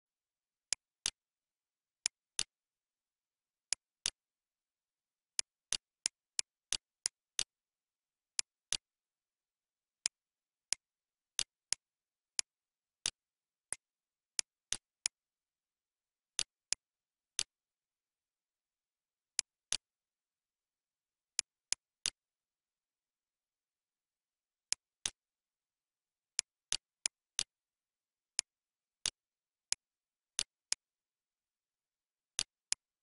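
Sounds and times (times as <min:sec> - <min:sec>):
computer mouse clicks: 0:02.1 - 0:02.5.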